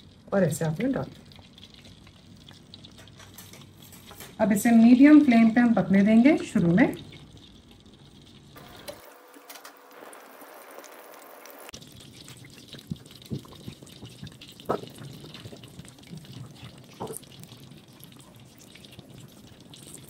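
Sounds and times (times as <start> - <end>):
oil bubbling and sizzling: 0.0 - 20.0
sharp pops of frying oil: 12.3 - 15.2.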